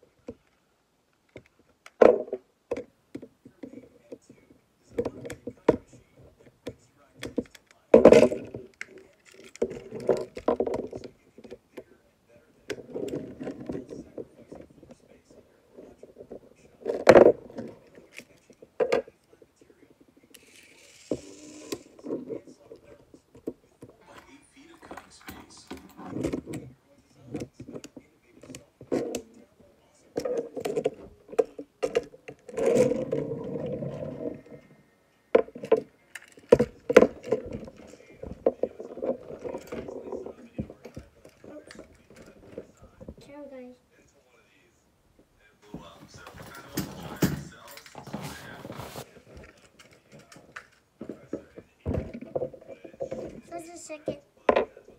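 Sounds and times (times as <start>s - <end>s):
small clicks taps and scrapes: 2.7s - 12.0s, 15.8s - 29.4s, 35.4s - 43.2s, 49.0s - 54.9s
plastic toy parts clacking: 7.2s - 11.6s, 20.3s - 22.2s.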